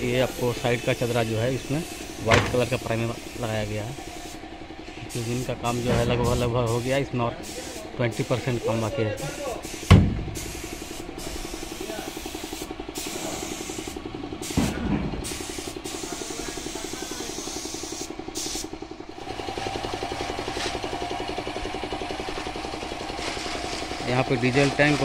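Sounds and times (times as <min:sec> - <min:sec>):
fast mechanical pulsing: 0:00.0 - 0:14.6, 0:15.2 - 0:25.0
spray gun hissing: 0:00.0 - 0:22.2
thump: 0:02.3 - 0:02.7, 0:09.9 - 0:10.4, 0:14.6 - 0:15.2.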